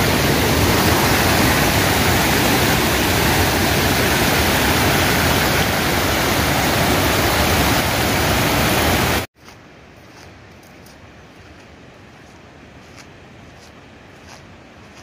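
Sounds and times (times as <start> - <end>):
floodwater rushing over rocks: 0.0 - 9.3.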